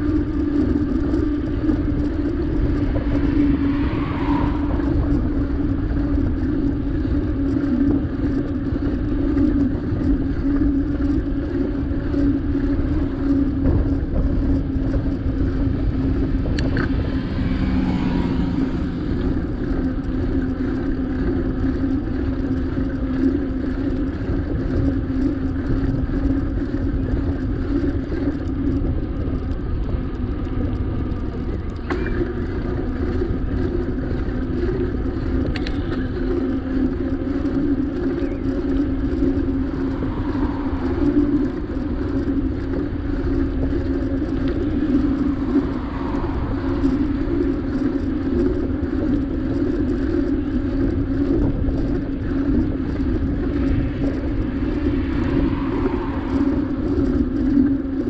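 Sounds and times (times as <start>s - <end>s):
low hum: 0.0s - 58.0s
wind and road noise: 0.0s - 58.0s
something passing by: 1.4s - 7.2s, 15.1s - 21.3s, 38.6s - 48.8s, 52.2s - 58.0s.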